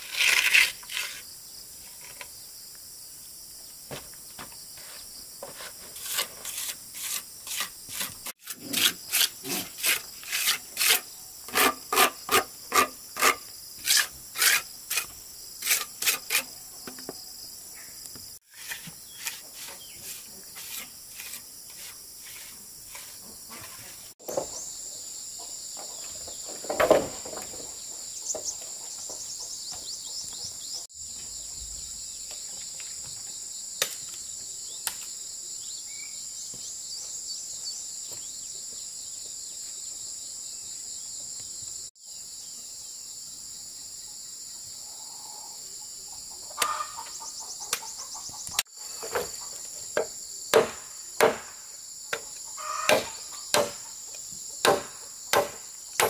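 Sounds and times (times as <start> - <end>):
crickets and insects chirring: 0.0 - 56.0
hand tool rasping on wood: 5.5 - 16.5.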